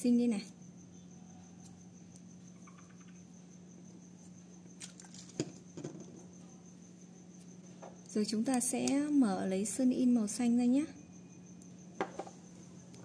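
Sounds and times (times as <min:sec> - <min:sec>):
faint steady hum: 0:00.0 - 0:13.0.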